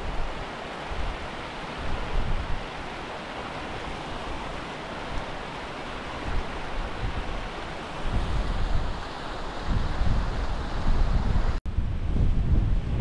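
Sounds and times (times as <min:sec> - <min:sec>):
wind buffeting microphone: 0:00.0 - 0:03.0, 0:06.2 - 0:13.0
stream tumbling over rocks: 0:00.0 - 0:11.5.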